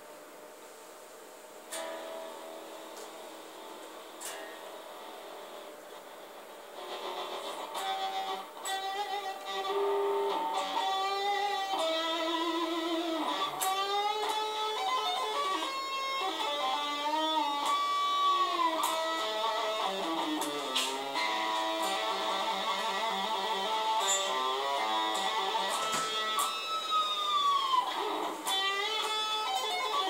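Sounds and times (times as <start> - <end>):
electric guitar bending notes: 6.8 - 30.0.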